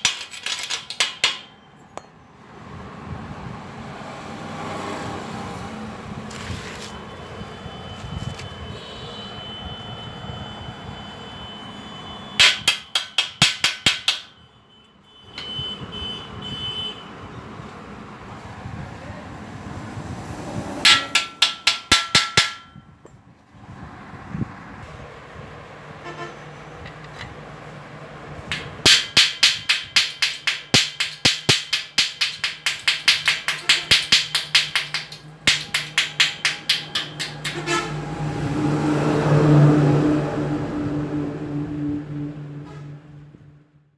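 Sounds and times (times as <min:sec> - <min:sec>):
chipping hammer striking metal: 0:00.0 - 0:01.6, 0:12.4 - 0:14.3, 0:20.9 - 0:22.8, 0:28.5 - 0:37.9
steady background noise: 0:00.0 - 0:15.6, 0:16.9 - 0:39.3.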